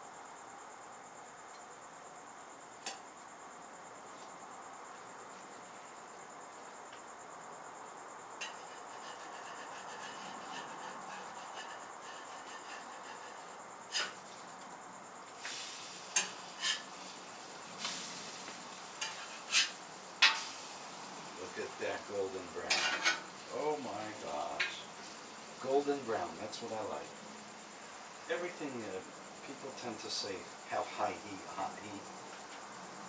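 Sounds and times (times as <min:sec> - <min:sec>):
metal spatula scraping griddle: 0:08.4 - 0:14.3, 0:15.4 - 0:20.8, 0:22.5 - 0:23.4.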